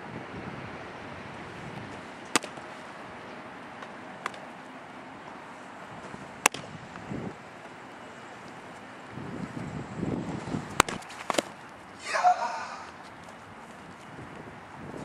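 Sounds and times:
wind noise: 0:00.0 - 0:03.2, 0:05.9 - 0:07.5, 0:09.0 - 0:15.0
baseballs smacking into a mitt: 0:02.3 - 0:02.6, 0:03.8 - 0:04.4, 0:06.4 - 0:06.7, 0:10.8 - 0:11.7.

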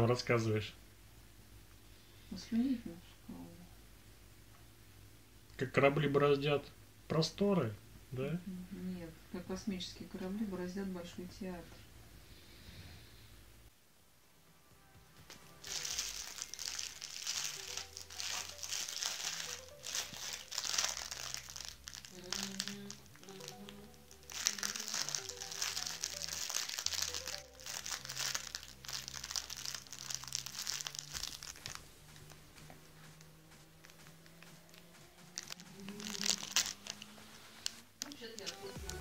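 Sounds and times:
faint music: 0:00.0 - 0:39.0
crinkly fabric toy crackling: 0:15.3 - 0:39.0.

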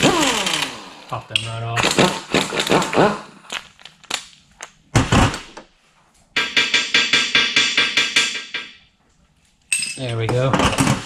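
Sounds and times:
impact wrench hammering: 0:06.4 - 0:08.8.

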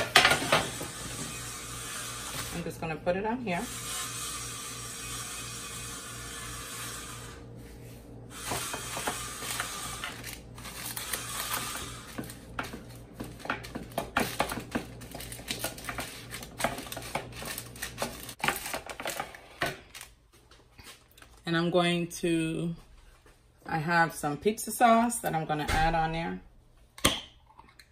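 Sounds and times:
paper crinkling: 0:09.4 - 0:20.1.

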